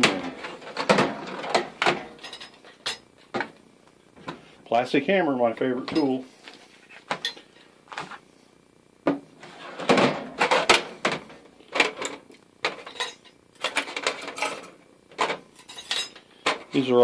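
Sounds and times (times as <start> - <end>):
metal tools clinking in steel drawer: 0.0 - 3.1, 11.8 - 16.2.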